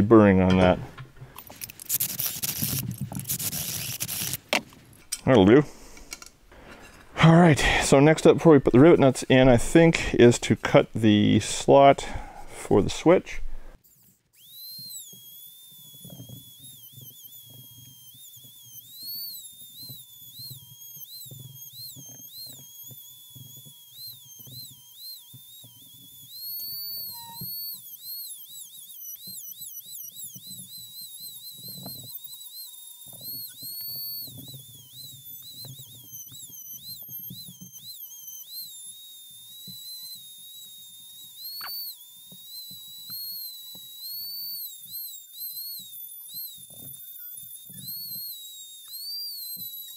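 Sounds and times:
power tool motor whine: 0:01.4 - 0:04.6, 0:13.8 - 0:49.9
rough metal cutting noise: 0:01.4 - 0:04.6, 0:13.9 - 0:49.9.

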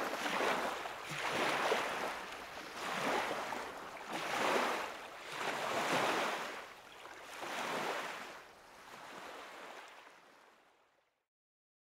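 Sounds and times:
water waves washing in: 0:00.0 - 0:08.3.

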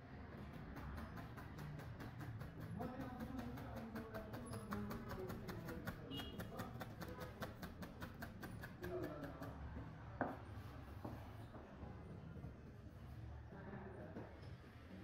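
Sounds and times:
faint music: 0:08.8 - 0:15.0.

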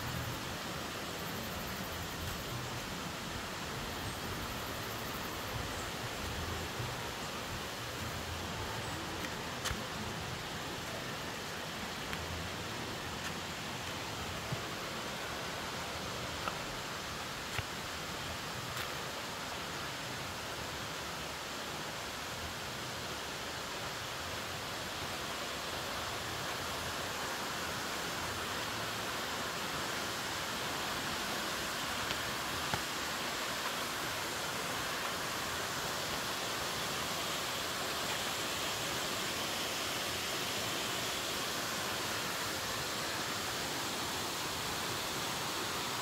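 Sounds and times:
flowing water rushing: 0:00.0 - 0:46.0
faint ticks: 0:12.0 - 0:12.3.

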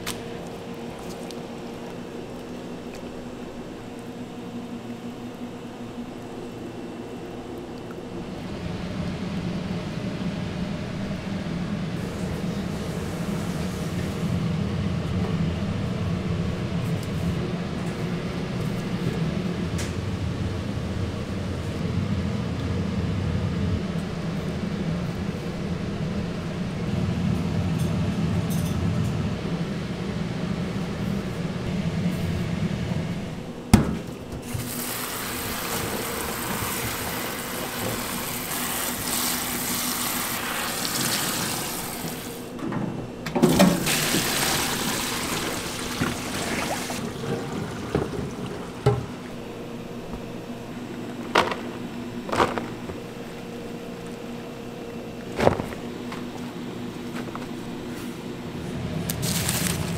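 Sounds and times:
tap water spraying into tub: 0:34.4 - 0:42.3, 0:43.6 - 0:49.4
hands rustling in flour: 0:59.0 - 0:59.9.

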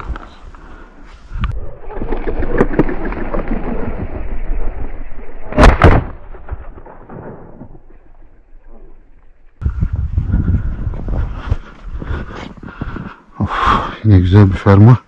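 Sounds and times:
shotgun shots: 0:05.5 - 0:07.7.

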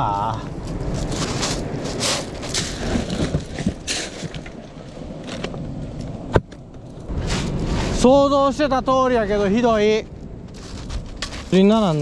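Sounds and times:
surf hiss: 0:00.0 - 0:06.3, 0:07.1 - 0:10.1
wind: 0:00.0 - 0:12.0
pebbles crunching and scraping: 0:00.5 - 0:05.8, 0:10.4 - 0:12.0.

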